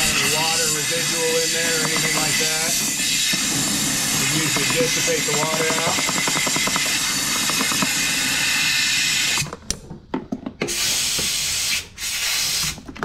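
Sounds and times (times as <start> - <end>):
aerosol spray hissing: 10.7 - 12.8.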